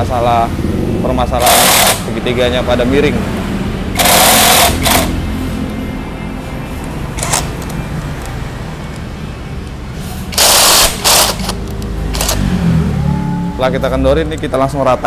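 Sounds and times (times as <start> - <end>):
impact wrench hammering: 1.4 - 2.1, 3.9 - 5.2, 10.3 - 11.6.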